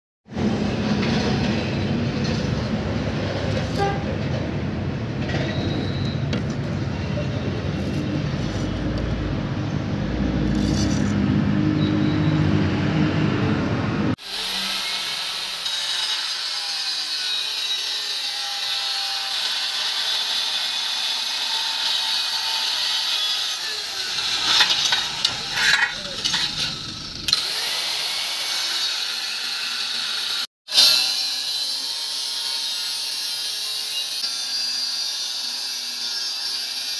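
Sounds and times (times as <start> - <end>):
angle grinder cutting: 14.1 - 36.9.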